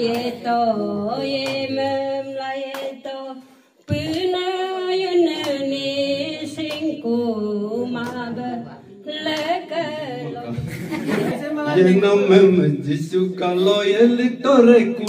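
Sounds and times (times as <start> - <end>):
elderly woman singing gospel: 0.0 - 12.0.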